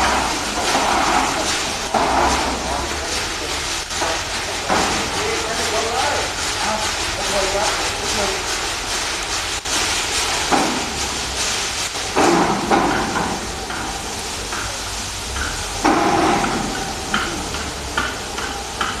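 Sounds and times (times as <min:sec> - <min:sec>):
concrete finishing machine scraping: 0:00.0 - 0:14.1
low mechanical hum: 0:00.0 - 0:19.0.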